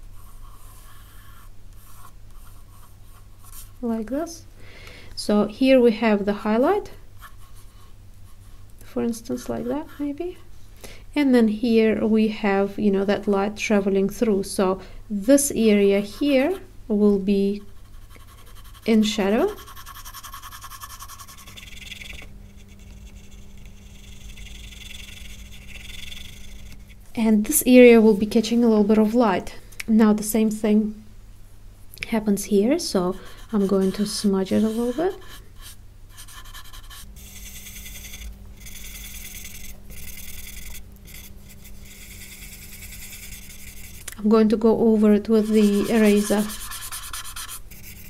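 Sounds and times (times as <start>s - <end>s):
pencil scratching on paper: 0.1s - 3.8s, 9.3s - 10.2s, 17.6s - 27.0s, 33.0s - 44.0s, 45.2s - 48.0s.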